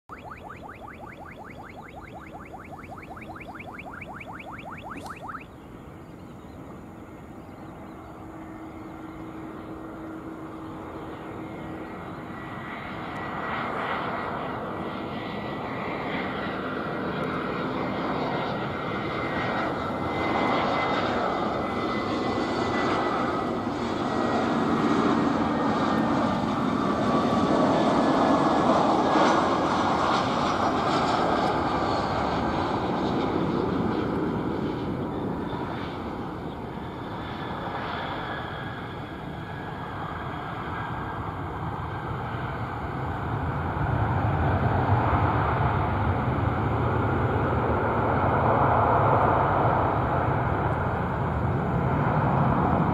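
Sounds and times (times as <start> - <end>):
faint high falling tone: 0.0 - 5.6
jet engines on approach: 0.0 - 52.9.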